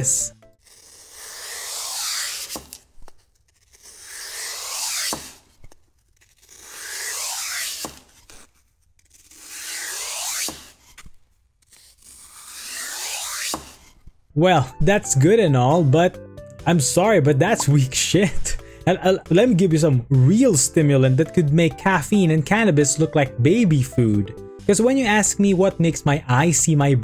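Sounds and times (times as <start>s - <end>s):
knife slicing through foam: 0.6s - 14.3s.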